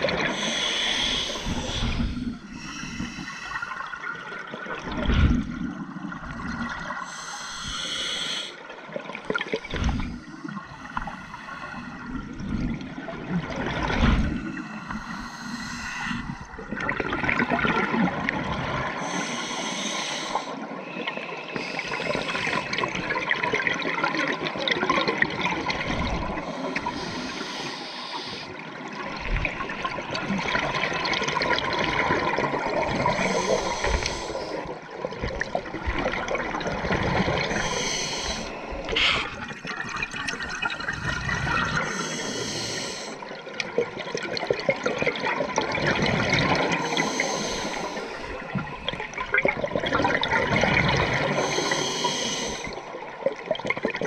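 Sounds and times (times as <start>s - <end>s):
bubbles gurgling underwater: 12.0s - 14.6s, 16.3s - 19.0s, 22.0s - 27.0s, 28.8s - 42.0s, 43.2s - 51.8s, 52.5s - 54.0s.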